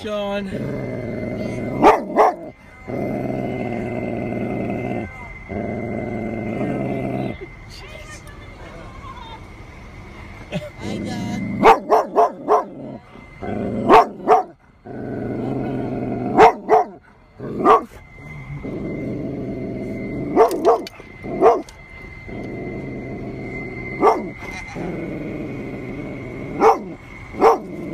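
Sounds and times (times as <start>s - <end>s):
dog growling: 0.3s - 7.6s, 10.8s - 27.9s
dog barking: 1.8s - 2.5s, 11.6s - 12.8s, 13.8s - 14.6s, 16.3s - 17.0s, 17.6s - 18.0s, 20.3s - 21.7s, 24.0s - 24.4s, 26.6s - 27.7s.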